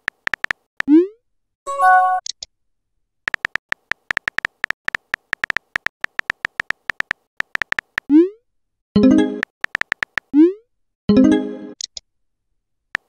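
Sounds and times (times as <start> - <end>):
keyboard tap clicks: 3.3 - 8.1, 9.4 - 10.3.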